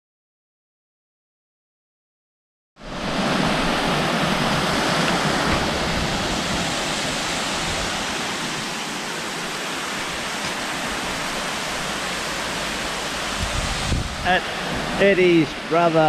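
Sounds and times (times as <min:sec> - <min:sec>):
waterfall rushing: 0:02.8 - 0:16.0.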